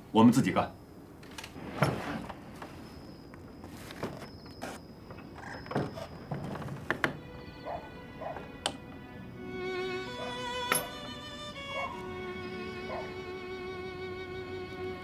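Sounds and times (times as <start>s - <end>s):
clothing rustle: 1.3s - 7.0s.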